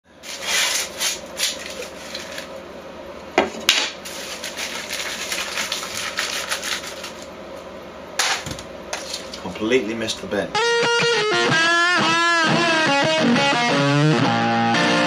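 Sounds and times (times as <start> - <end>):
crackling rustling of scrunching: 0.2 - 2.6, 4.0 - 7.3.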